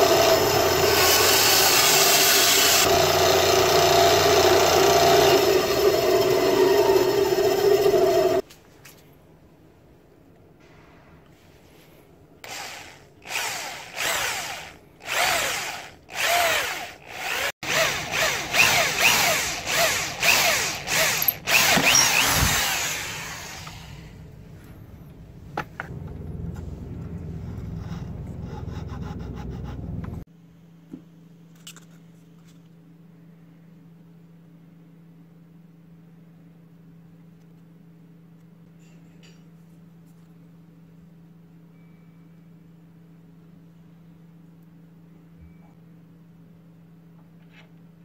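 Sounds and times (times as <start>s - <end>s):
electric drill boring into wood: 0.0s - 8.4s, 12.4s - 24.1s.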